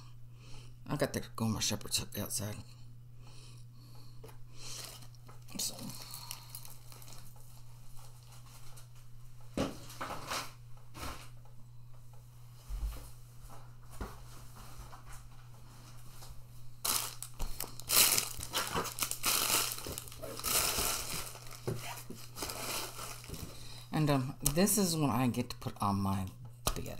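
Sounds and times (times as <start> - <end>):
plastic packaging crinkling: 4.7 - 8.9, 16.8 - 23.6.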